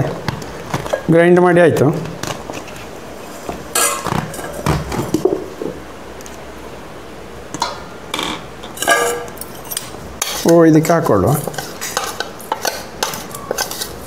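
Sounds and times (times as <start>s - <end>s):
metal knocks and clinks: 8.8s - 10.0s
metal jar scraping: 8.8s - 10.6s, 11.3s - 14.0s.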